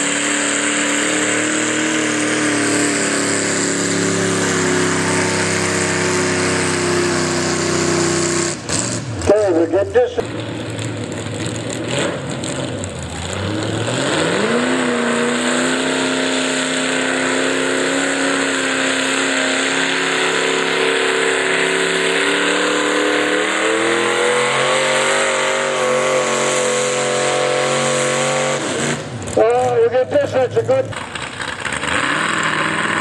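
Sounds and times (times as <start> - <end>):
tractor engine revving: 0.0 - 33.0.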